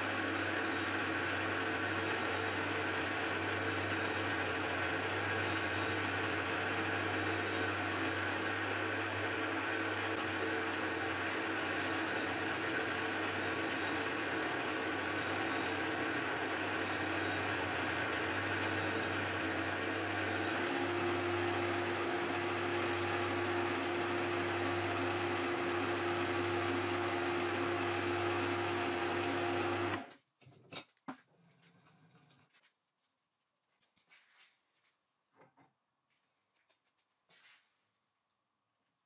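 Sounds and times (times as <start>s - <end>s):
milling machine motor whine: 0.0s - 30.1s.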